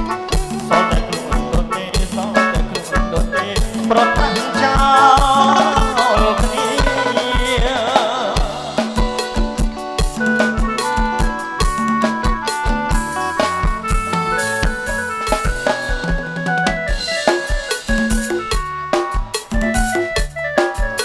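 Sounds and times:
keyboard and guitar: 0.0s - 21.0s
man singing: 0.5s - 9.4s.

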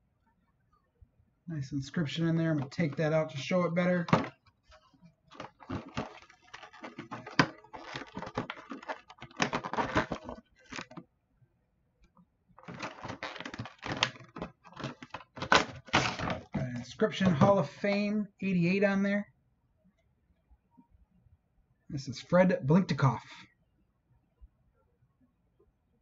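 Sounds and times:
plastic and cardboard clicks and rustles: 2.0s - 11.0s, 12.6s - 18.0s.

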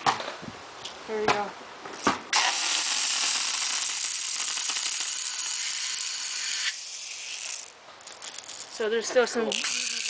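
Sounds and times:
compressed air hissing: 2.3s - 7.7s
bbs rattling: 7.1s - 10.0s.

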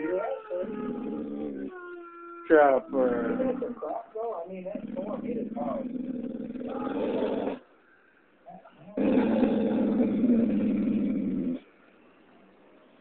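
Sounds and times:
dog growling: 0.0s - 4.0s, 4.6s - 7.7s, 8.9s - 11.7s.

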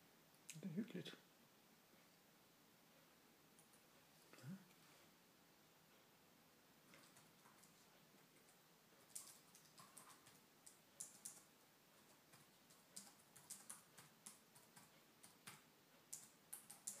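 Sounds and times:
rabbit licking fur clicks: 8.4s - 17.0s.

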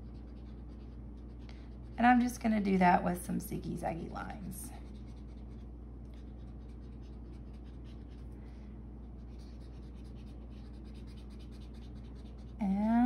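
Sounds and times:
marker scratching on paper: 0.0s - 2.0s, 4.8s - 8.3s, 9.2s - 12.9s
steady low hum: 0.0s - 13.0s.

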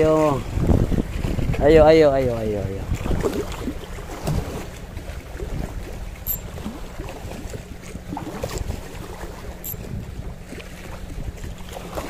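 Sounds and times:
wind buffeting microphone: 0.0s - 12.0s
waves lapping against rocks: 2.8s - 12.0s.

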